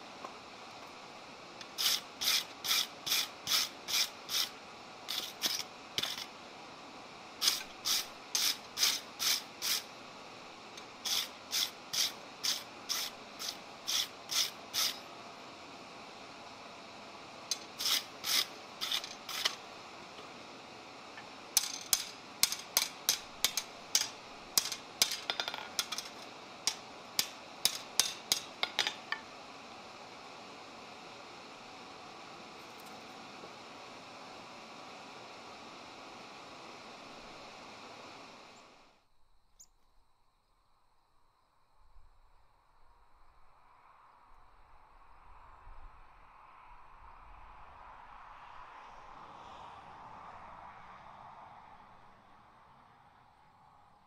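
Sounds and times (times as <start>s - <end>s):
hammer striking metal on anvil: 26.7s - 29.2s.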